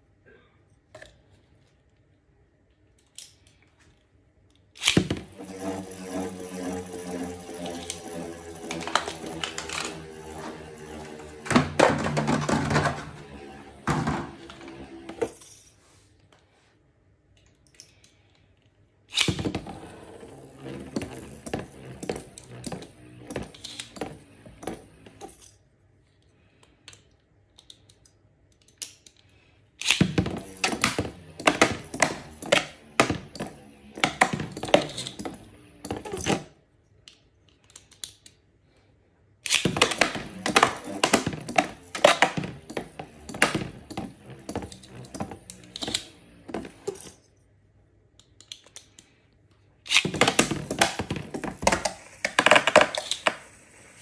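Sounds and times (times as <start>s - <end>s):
spinning tops clashing: 4.8s - 13.8s.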